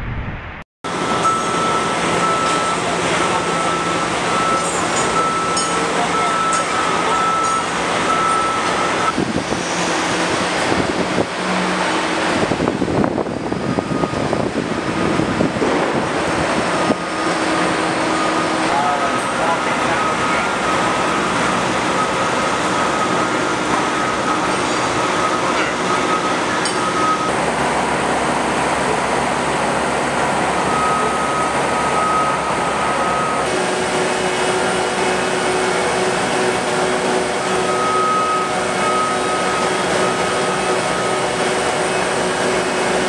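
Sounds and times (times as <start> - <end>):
construction machinery running: 0.9 - 43.0
thin high tone: 1.0 - 9.0.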